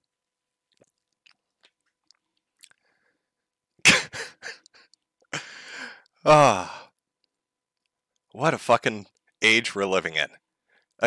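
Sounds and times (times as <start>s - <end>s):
faint mouth clicks: 0.7s - 2.9s
man coughing: 3.8s - 5.6s
rasping breath: 4.3s - 6.9s.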